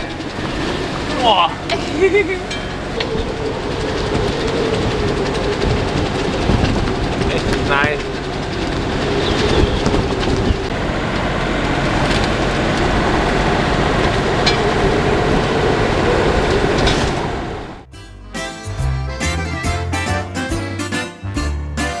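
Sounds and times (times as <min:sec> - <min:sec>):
wind buffeting microphone: 0:00.0 - 0:17.9
music: 0:17.9 - 0:22.0.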